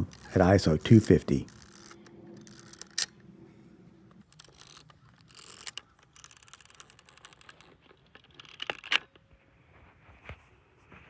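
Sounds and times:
film camera clicking and ratcheting: 0.0 - 3.2, 4.2 - 9.2
low hum: 1.4 - 4.6.

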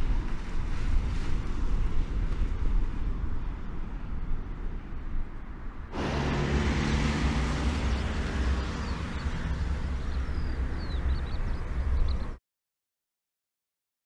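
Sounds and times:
diesel truck driving past: 5.9 - 12.4.

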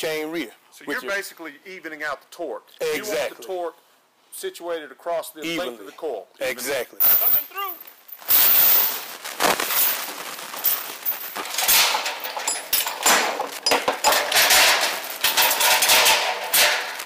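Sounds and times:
steel chain clattering and rattling: 7.0 - 9.1, 9.7 - 17.0.

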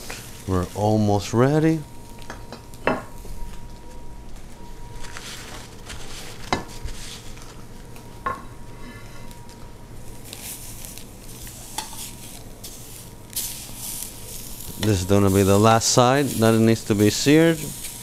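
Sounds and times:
fish sizzling in hot pan: 10.2 - 18.0.

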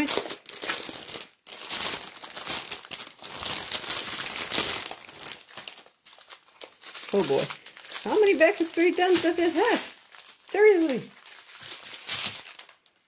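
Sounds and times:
plastic wrap crinkling: 0.0 - 13.0.

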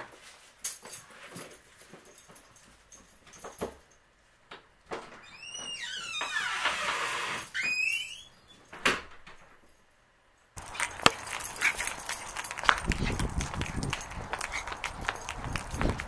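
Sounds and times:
short high squeals: 5.2 - 8.6
dog claws on concrete: 10.6 - 16.0
footsteps on concrete: 10.6 - 16.0
rustling: 10.6 - 16.0.

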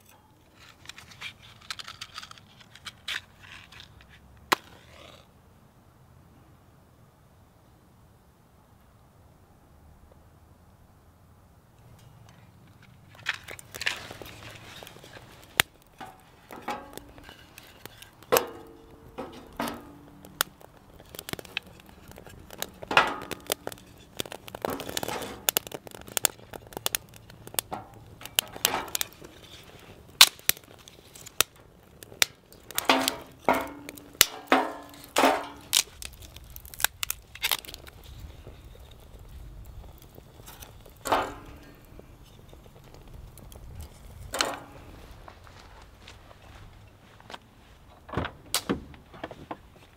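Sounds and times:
fire crackling and popping: 0.0 - 5.4, 11.6 - 49.9
wooden sticks clacking: 12.0 - 38.0, 40.0 - 42.3.

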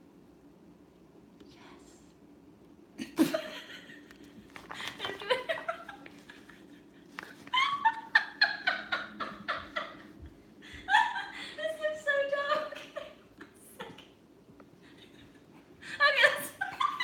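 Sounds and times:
woman laughing: 3.0 - 14.2, 14.8 - 17.0.

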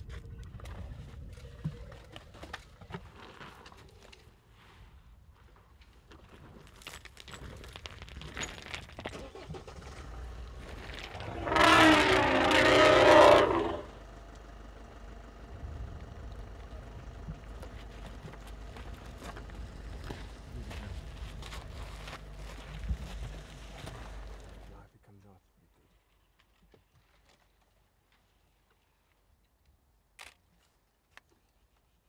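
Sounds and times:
vehicle engine running: 9.4 - 24.8
elephant trumpeting: 11.0 - 14.0.

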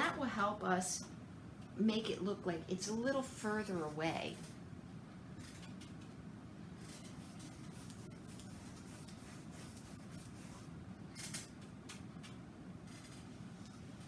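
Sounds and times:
paintbrush swishing on canvas: 6.8 - 10.7.

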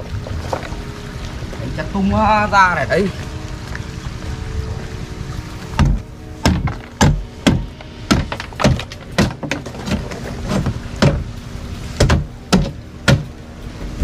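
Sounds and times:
machete chopping hollow plastic: 5.8 - 10.0.

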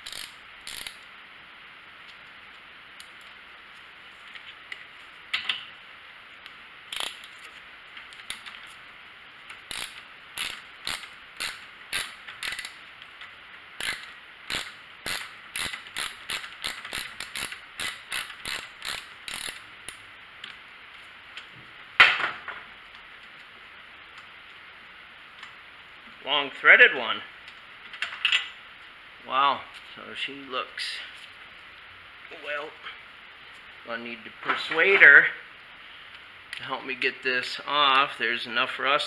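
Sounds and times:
socket ratchet clicking: 0.0 - 1.0, 6.9 - 7.3, 9.5 - 12.8, 13.8 - 20.0.

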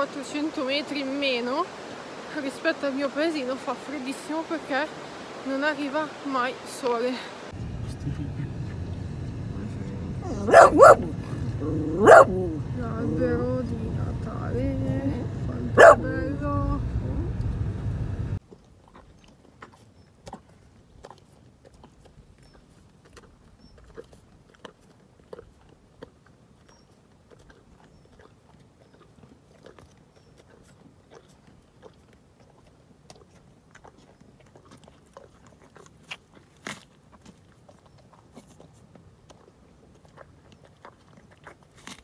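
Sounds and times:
moving car noise: 7.5 - 18.4
donkey chewing carrots: 7.6 - 17.7, 18.4 - 42.0.

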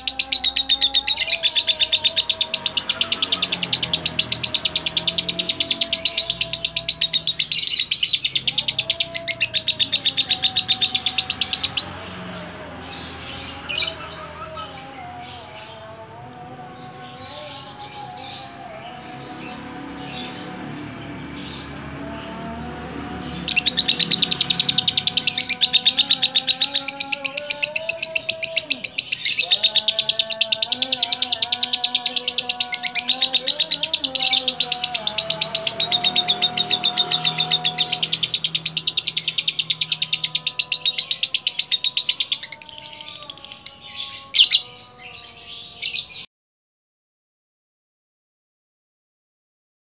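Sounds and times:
lovebird chattering chirps: 23.5 - 43.5.

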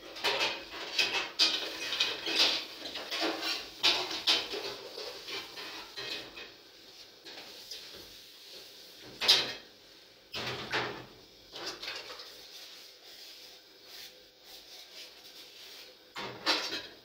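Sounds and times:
metal pans clanking in sink: 0.0 - 6.6, 9.1 - 9.6, 16.2 - 17.0.

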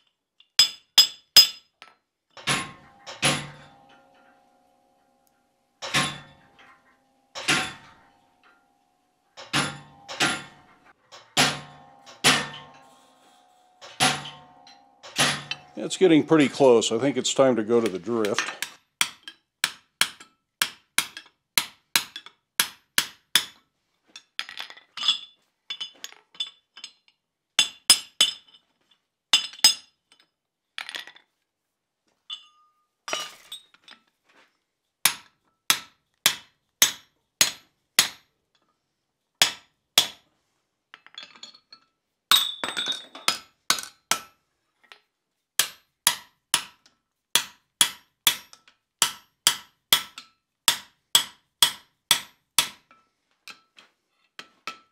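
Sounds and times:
hammer ringing on steel: 2.4 - 5.2, 9.4 - 16.8
light metal clinks: 32.2 - 34.0.

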